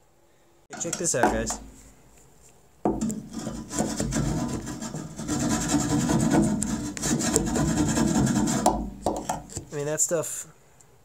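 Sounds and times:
metal tool scraping inside steel tank: 0.7s - 1.9s, 2.9s - 9.8s.

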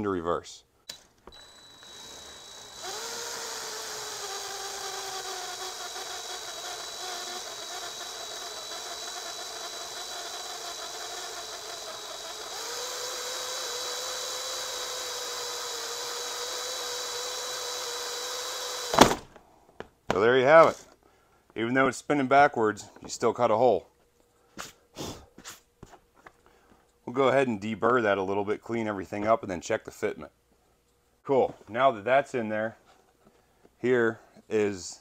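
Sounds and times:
cordless drill motor whine: 0.9s - 19.1s.

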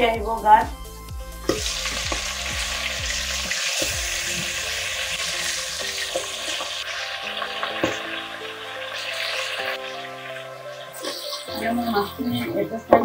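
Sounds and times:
fish sizzling in oil: 1.2s - 13.0s
oil spitting pops: 1.4s - 6.6s.

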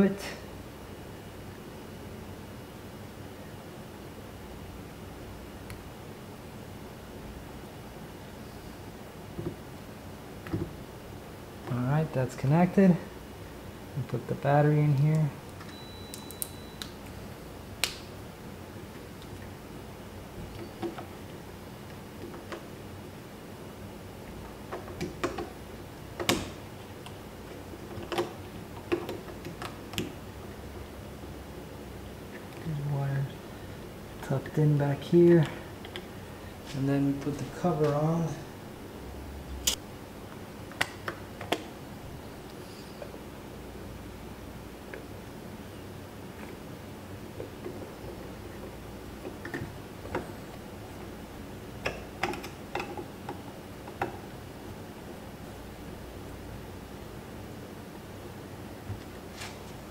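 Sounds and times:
lock clicks and taps: 51.8s - 54.2s.

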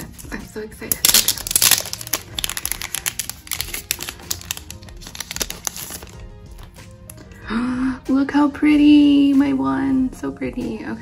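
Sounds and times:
packaging crinkling and rustling: 0.9s - 6.3s.

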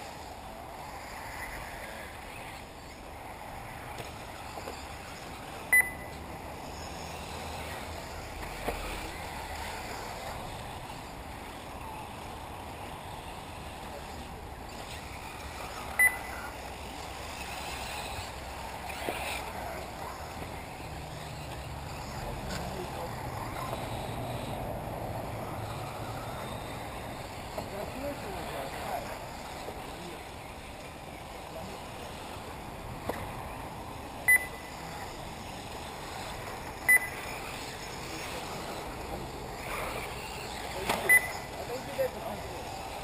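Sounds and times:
rc car motors whirring: 0.0s - 43.0s
short high beeps: 5.7s - 6.2s, 16.0s - 16.4s, 34.3s - 34.7s, 36.9s - 37.2s, 41.0s - 41.5s.

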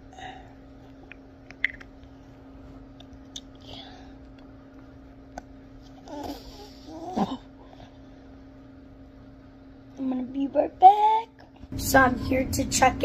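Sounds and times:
faint steady hum: 0.0s - 13.0s
wet mouth clicks and smacks: 1.1s - 1.9s.

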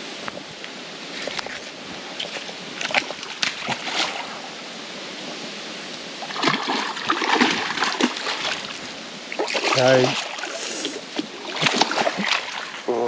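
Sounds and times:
steady hiss: 0.0s - 7.2s, 8.2s - 13.0s
fish splashing in water: 2.2s - 4.5s, 6.2s - 12.9s.

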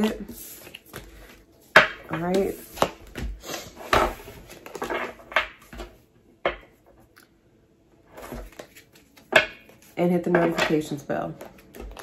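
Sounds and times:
cards slapping and rustling: 0.0s - 5.9s, 8.2s - 9.9s.

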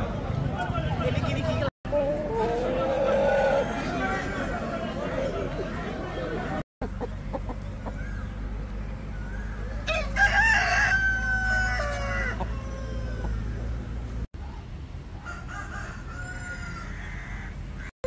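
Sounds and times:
faint second rooster crowing: 9.8s - 13.7s
rooster crowing: 9.8s - 13.7s, 15.2s - 17.9s.

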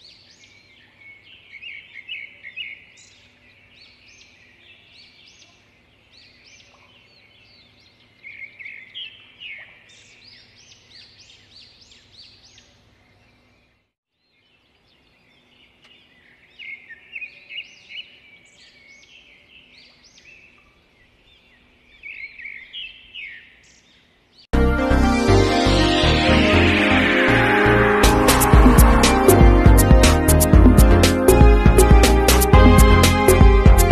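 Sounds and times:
small birds chirping: 0.0s - 24.5s
loud music: 24.6s - 33.9s.

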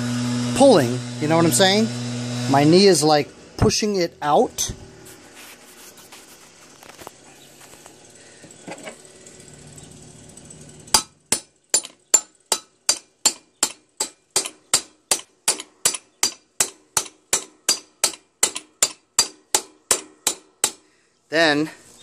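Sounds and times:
hammer striking steel chisel: 10.9s - 20.8s.

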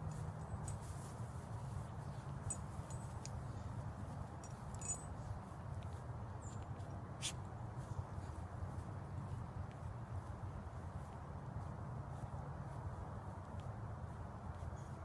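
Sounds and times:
rustling on dry grass: 0.0s - 4.7s.

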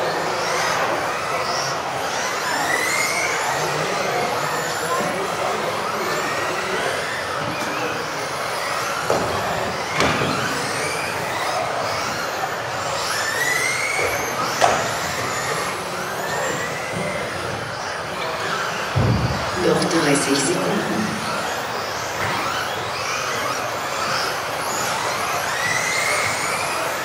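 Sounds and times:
electric motors whining: 20.2s - 27.0s.

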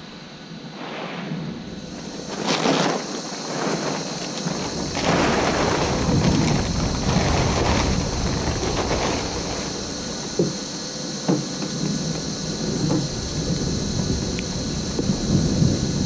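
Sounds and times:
rain hiss: 0.0s - 16.0s
plastic tarp crinkling: 1.9s - 10.7s.

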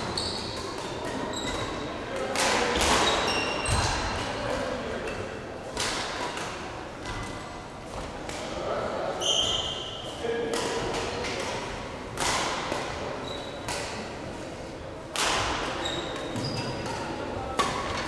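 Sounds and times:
shoes squeaking on court floor: 0.0s - 1.9s, 3.0s - 4.0s, 9.2s - 10.0s, 13.2s - 13.8s, 15.8s - 17.1s
shuttlecock hits and thuds: 0.0s - 4.3s, 5.1s - 8.6s, 10.5s - 14.1s, 15.1s - 18.0s
voices echoing: 0.0s - 18.0s.

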